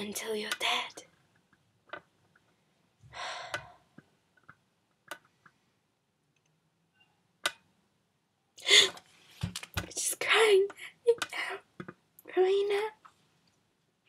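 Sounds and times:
breathy exhale: 3.1s - 3.8s.

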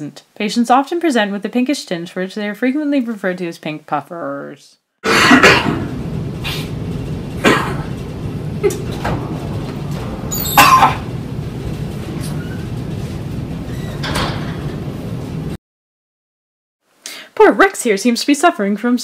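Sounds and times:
man coughing: 5.0s - 5.9s
low hum: 5.3s - 15.6s.

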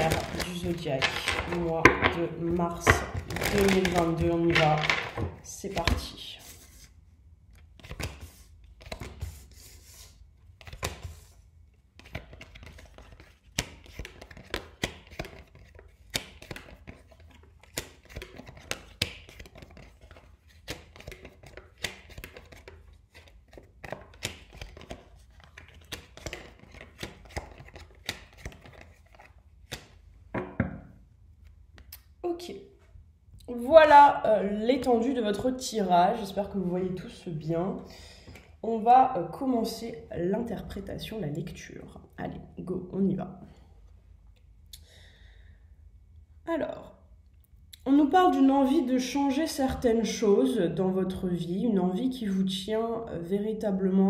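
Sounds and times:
cards tapping on wooden table: 25.9s - 30.9s.

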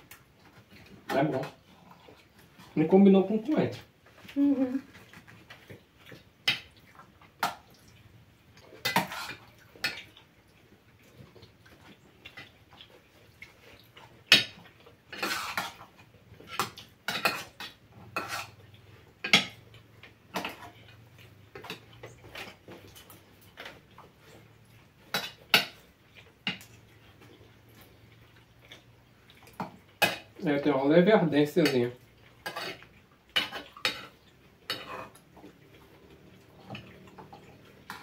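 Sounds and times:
cutlery clinking on plates: 19.2s - 19.6s, 32.4s - 35.2s.

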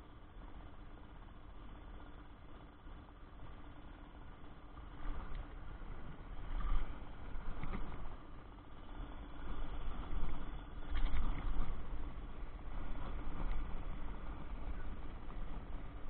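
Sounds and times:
faint hum: 0.0s - 16.0s
low rumble: 2.8s - 16.0s.

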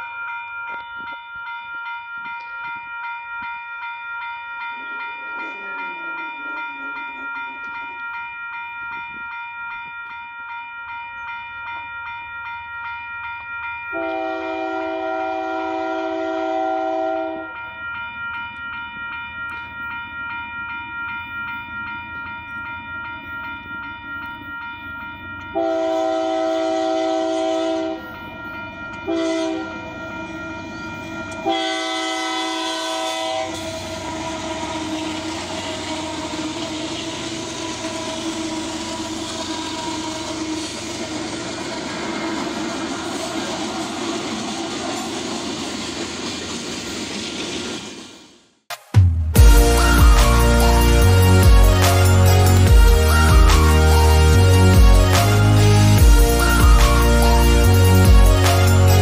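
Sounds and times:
railroad crossing bell ringing: 0.0s - 46.3s, 49.4s - 59.0s
locomotive air horn blasts: 14.0s - 17.5s, 25.6s - 28.1s, 29.1s - 29.8s, 31.4s - 40.4s, 49.4s - 59.0s
locomotive engine and wheels rumbling: 17.7s - 48.4s, 49.4s - 59.0s.

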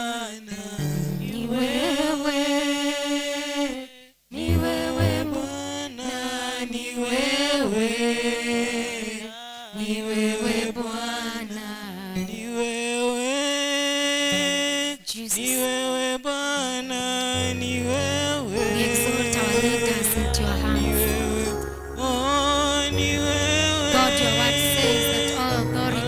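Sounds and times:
woman singing into microphone: 1.2s - 2.3s, 4.4s - 6.2s, 17.8s - 26.0s.

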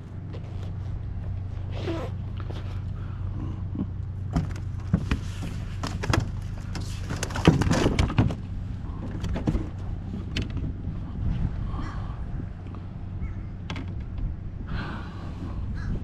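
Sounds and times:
steady low hum: 0.0s - 16.0s
fishing gear rattling on plastic: 4.4s - 8.4s.

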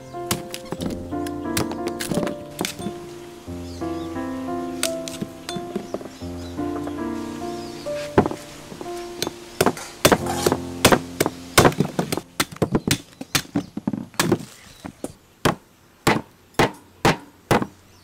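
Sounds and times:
cleaver chopping on wooden block: 9.6s - 14.5s, 15.5s - 17.7s.

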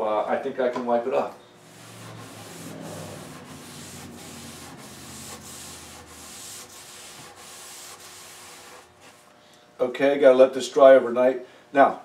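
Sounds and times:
cloth rag rubbing wooden desktop: 1.6s - 9.3s.

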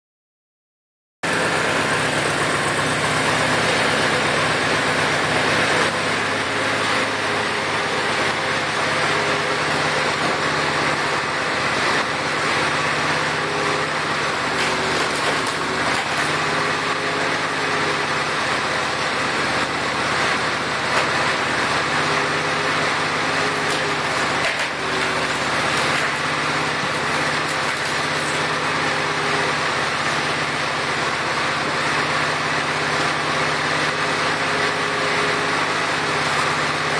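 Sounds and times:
tractor engine running: 1.2s - 36.9s.

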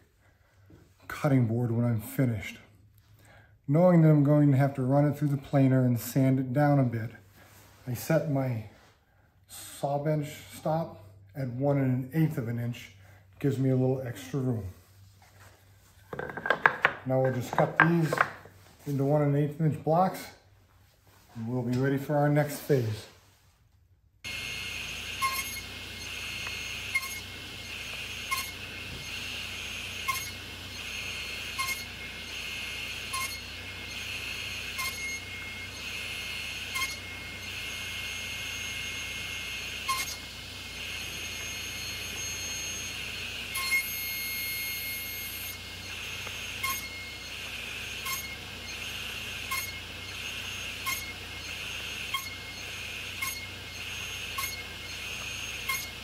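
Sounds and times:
table saw running: 16.1s - 18.5s, 24.2s - 56.0s.

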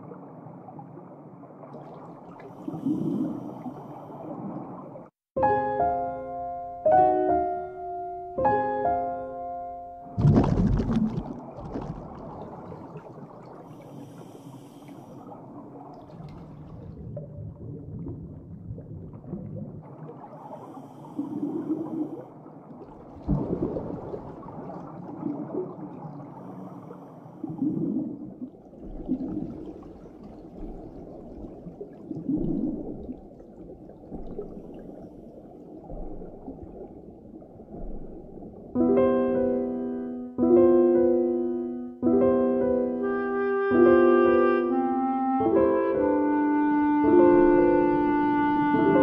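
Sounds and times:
low watery rumble with gurgling: 0.0s - 5.3s, 10.1s - 43.1s, 46.2s - 49.0s
diver breathing through helmet: 13.7s - 15.3s, 20.6s - 22.2s.

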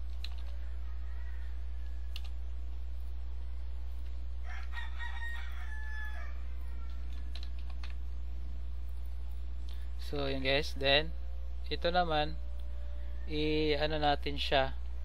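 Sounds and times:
keyboard clicks: 0.0s - 0.6s, 2.1s - 2.4s, 6.9s - 8.0s
low hum: 0.0s - 15.0s
rooster crowing: 0.3s - 2.5s, 4.4s - 7.5s, 12.7s - 14.0s.

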